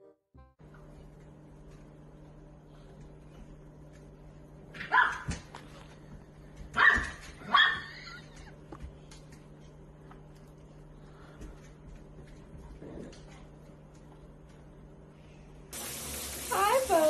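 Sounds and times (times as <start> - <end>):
dog barking: 4.8 - 5.3, 6.8 - 7.9.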